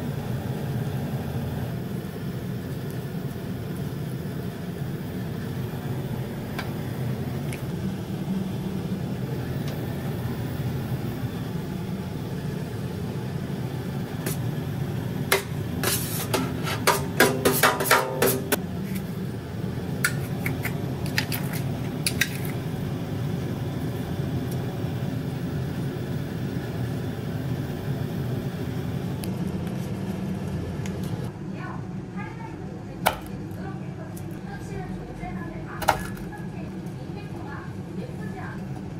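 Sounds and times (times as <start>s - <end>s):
low kitchen rumble: 0.0s - 38.9s
metal ladle scraping a wok: 15.8s - 18.6s.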